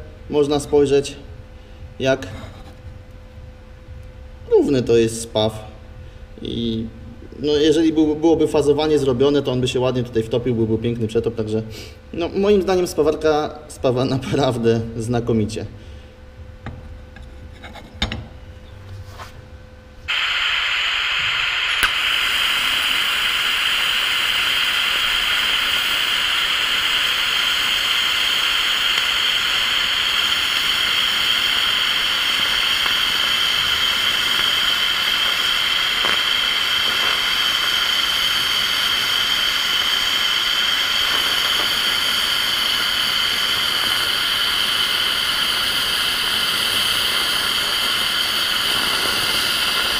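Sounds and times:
welding arc hissing: 0:20.1 - 0:49.9.

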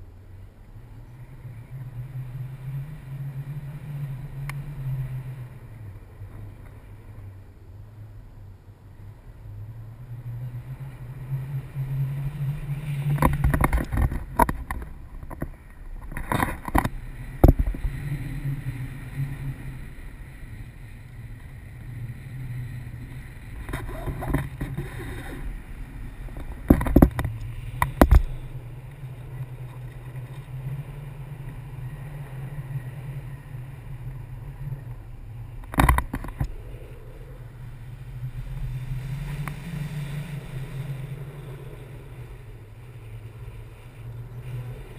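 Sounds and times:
wind rumbling on microphone: 0:00.0 - 0:44.9
sharp wind buffeting cracks: 0:09.1 - 0:44.9.

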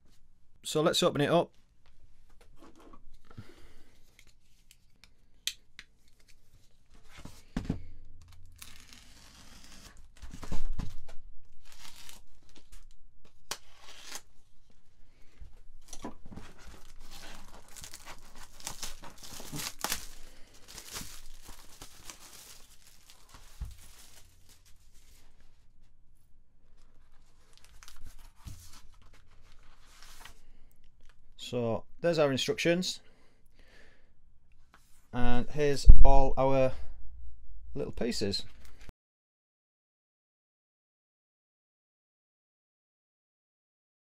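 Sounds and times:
plastic wrap tearing and crinkling: 0:08.2 - 0:10.6, 0:11.4 - 0:14.4, 0:15.8 - 0:25.0, 0:26.8 - 0:30.3
knife slitting plastic wrap: 0:08.5 - 0:10.0, 0:11.6 - 0:12.2, 0:13.5 - 0:14.3, 0:16.8 - 0:24.7.

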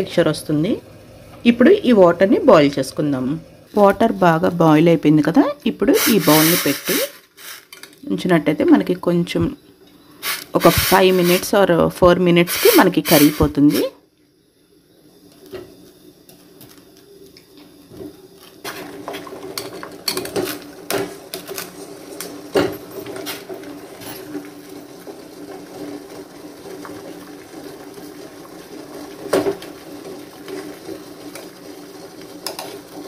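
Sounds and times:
water boiling hard: 0:05.9 - 0:07.8, 0:10.2 - 0:11.6, 0:12.4 - 0:13.9, 0:17.8 - 0:33.0.

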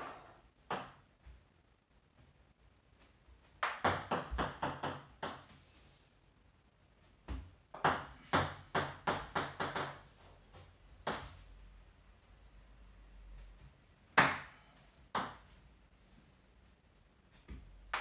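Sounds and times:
ball bouncing on table: 0:03.6 - 0:05.5, 0:17.5 - 0:18.0.

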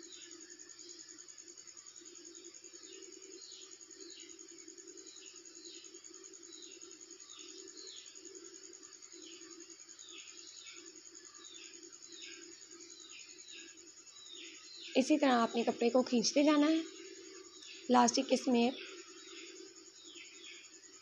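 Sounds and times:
birds chirping: 0:10.1 - 0:20.8.

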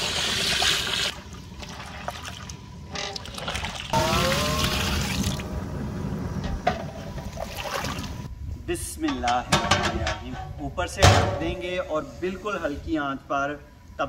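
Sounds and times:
water sloshing: 0:01.1 - 0:05.5, 0:06.5 - 0:08.3.

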